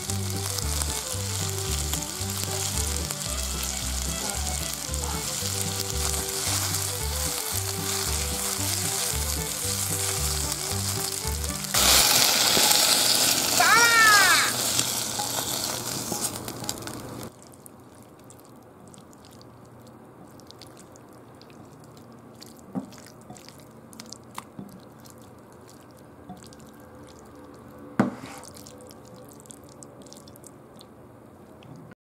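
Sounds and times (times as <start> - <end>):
wet squelches of stirring: 0.0 - 11.8, 12.4 - 31.9
chicken sizzling: 0.0 - 18.3.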